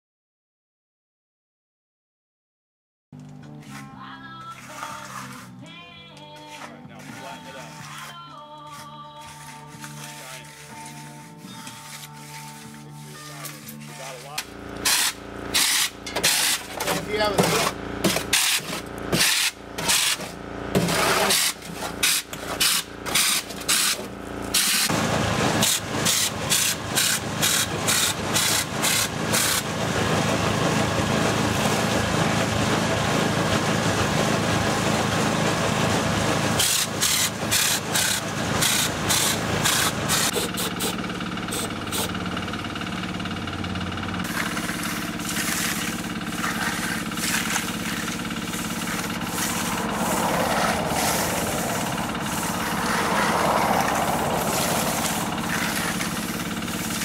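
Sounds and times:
engine running: 3.2s - 57.0s
compressed-air sprayer blasting: 21.3s - 29.7s, 36.6s - 42.2s.

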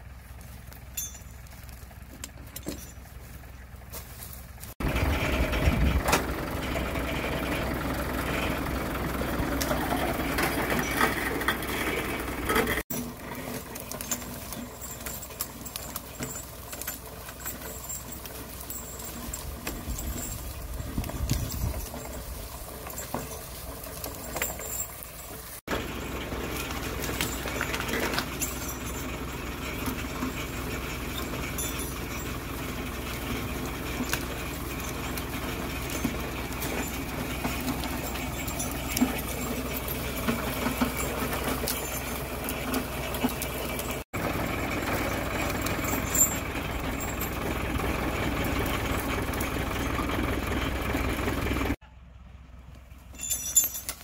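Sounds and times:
dry brush crackling: 0.0s - 4.8s, 13.0s - 50.0s
tractor engine idling: 0.0s - 54.0s.

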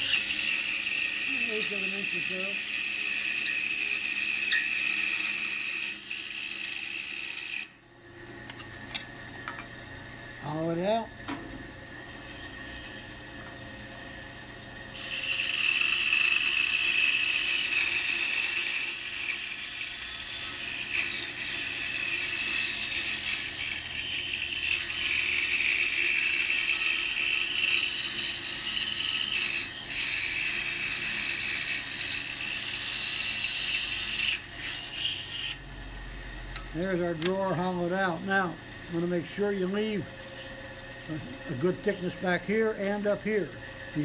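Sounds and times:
scroll saw cutting wood: 0.0s - 7.8s, 14.9s - 35.7s.

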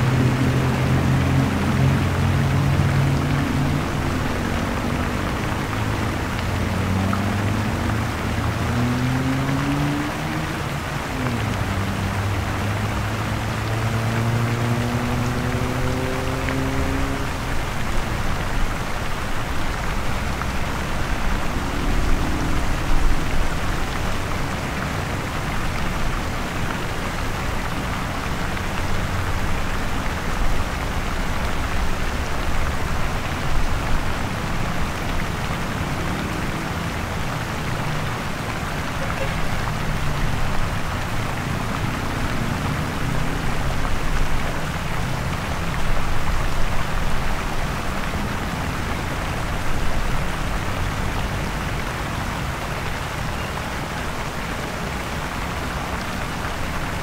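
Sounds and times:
road noise: 0.0s - 57.0s
deep engine rumble: 19.4s - 26.2s.

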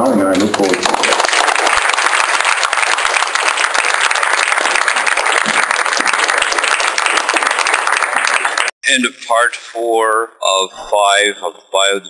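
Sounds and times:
audience applauding: 0.2s - 8.8s.

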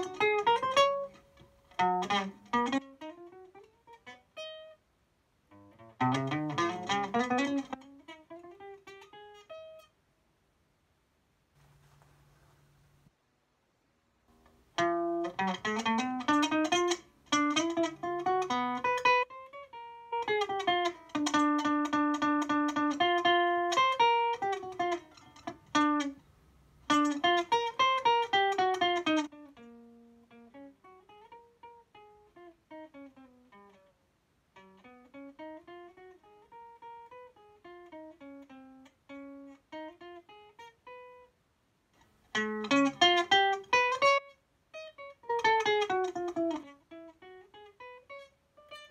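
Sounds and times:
fingerstyle acoustic guitar: 5.9s - 8.8s, 14.8s - 19.3s, 20.0s - 26.2s.

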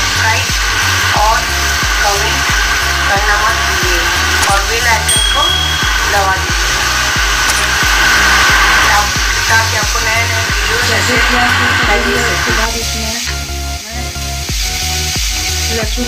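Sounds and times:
background music with steady beat: 0.0s - 16.0s
onions sizzling in hot oil: 0.0s - 16.0s.

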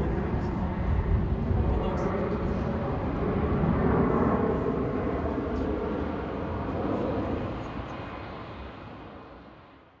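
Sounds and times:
jet aircraft engines rumbling: 0.0s - 10.0s.

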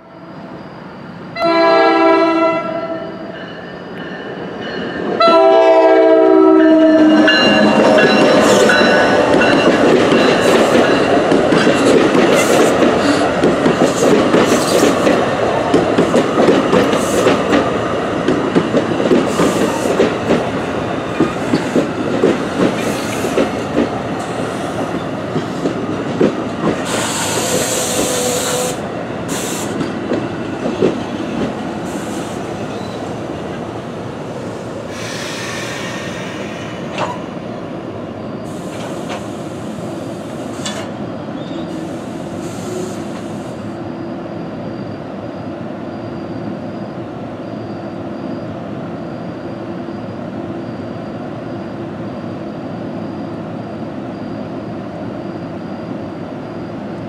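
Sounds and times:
train rumbling past: 0.0s - 48.5s
locomotive horn blasts: 1.4s - 3.1s, 5.2s - 7.7s
burst of hissing: 34.9s - 36.8s.

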